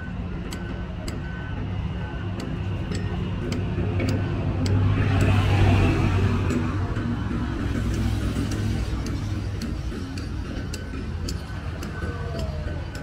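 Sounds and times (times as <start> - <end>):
traffic rumble: 0.0 - 13.0
vehicle passing close by: 4.3 - 9.2.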